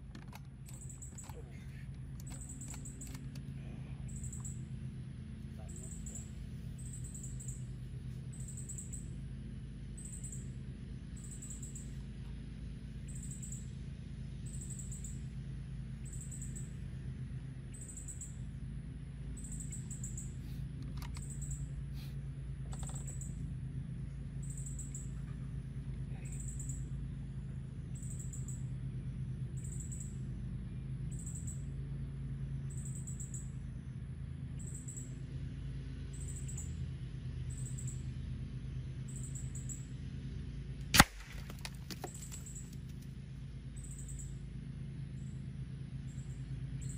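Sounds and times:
box fan humming: 0.0 - 46.9
insect chirping: 0.7 - 1.4, 2.2 - 3.2, 4.1 - 4.7, 5.6 - 7.7, 8.3 - 9.2, 10.0 - 10.6, 11.2 - 12.0, 13.0 - 13.8, 14.4 - 15.4, 16.0 - 16.8, 17.7 - 18.5, 19.4 - 20.4, 21.2 - 21.7, 22.7 - 23.4, 24.4 - 25.2, 26.2 - 26.9, 28.0 - 28.7, 29.5 - 30.2, 31.1 - 31.7, 32.6 - 34.0, 34.6 - 35.2, 36.1 - 36.8, 37.5 - 38.1, 39.0 - 39.9, 41.4 - 42.9, 43.7 - 44.4, 45.2 - 46.9.

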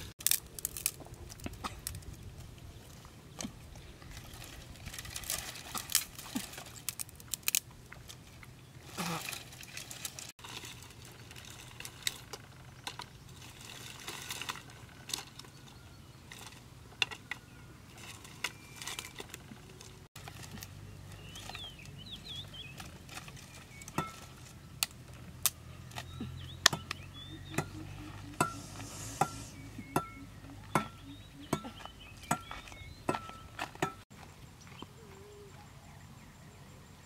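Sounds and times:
dry sticks snapping: 0.2 - 2.1, 5.1 - 8.1, 24.8 - 25.6
bird chirps: 21.1 - 22.8, 26.0 - 33.6.

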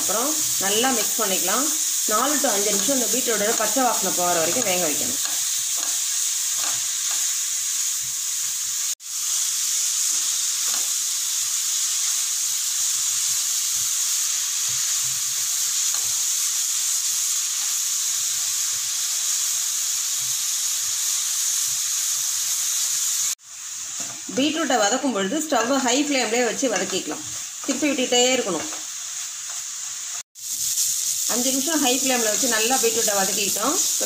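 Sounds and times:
beetroot sizzling in a pan: 0.0 - 34.0
spatula scraping a pan: 2.7 - 7.4.

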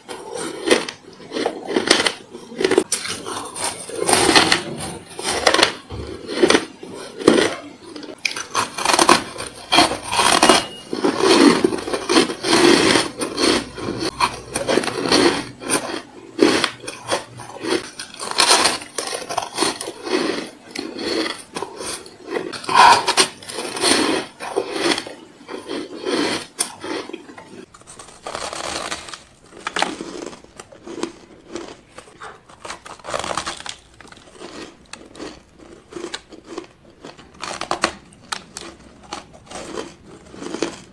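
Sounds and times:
chewing crunchy ice: 0.0 - 40.9.

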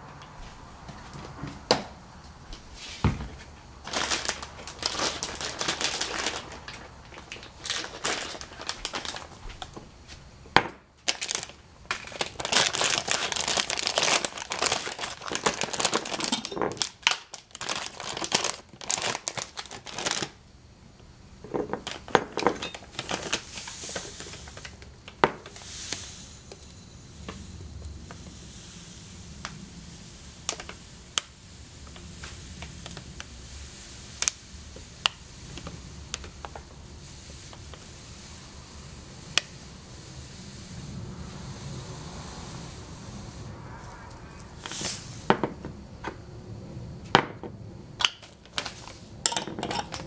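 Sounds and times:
packet crinkling: 3.8 - 9.7, 11.0 - 20.4, 21.7 - 25.6
tea leaves pouring rustle: 3.8 - 10.2, 11.0 - 20.4, 21.6 - 45.3, 48.2 - 50.0.

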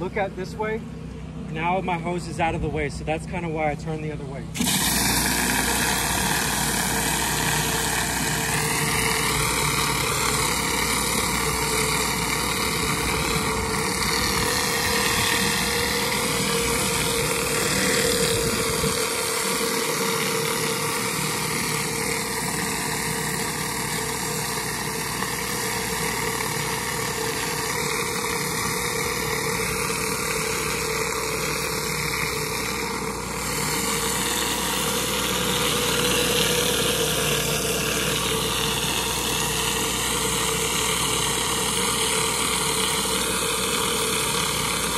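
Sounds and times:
pressure washer engine running: 0.0 - 44.9
water spray hissing on pavers: 4.6 - 23.8.

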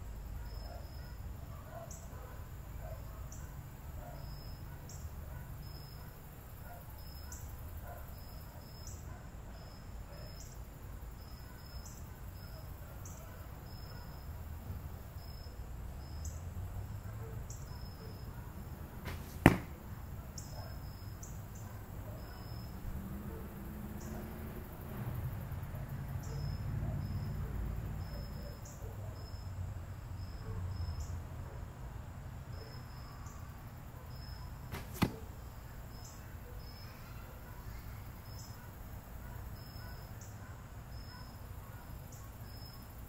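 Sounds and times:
insect chirps: 0.0 - 18.4, 32.5 - 37.1, 38.1 - 43.0
arrow shot from bow: 19.0 - 19.8, 34.7 - 35.3.

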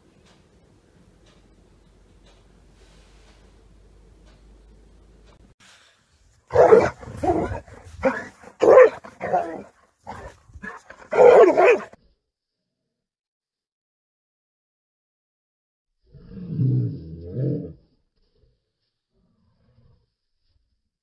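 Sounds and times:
dog barking: 6.5 - 12.0.

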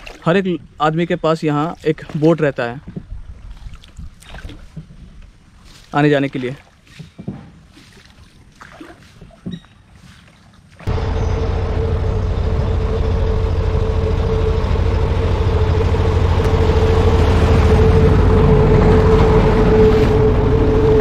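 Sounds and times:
boat engine running: 10.8 - 21.0.

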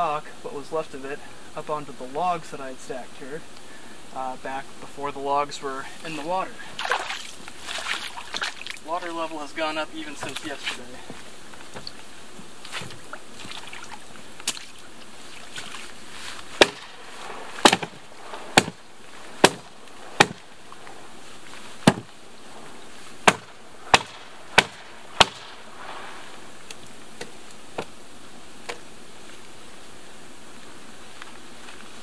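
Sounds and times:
tool chopping wet wood: 16.6 - 16.9, 17.6 - 18.8, 19.4 - 20.4, 21.8 - 22.1, 23.2 - 25.5.

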